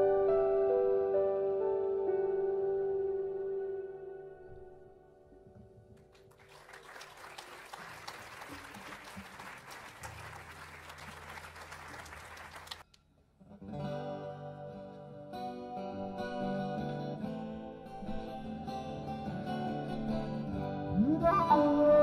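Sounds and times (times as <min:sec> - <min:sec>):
audience applause: 0:06.1 - 0:12.8
acoustic guitar playing: 0:13.4 - 0:22.0
flute and keyboard music: 0:20.9 - 0:22.0.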